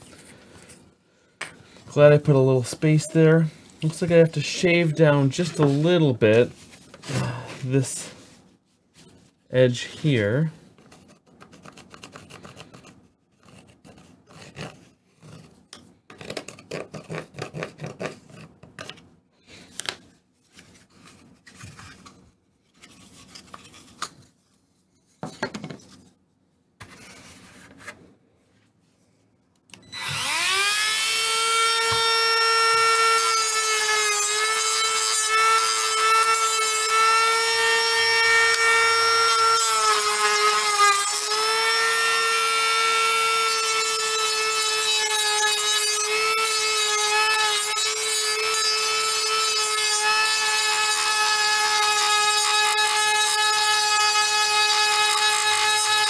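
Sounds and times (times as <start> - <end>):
high-speed power tool whining: 29.9 - 56.0.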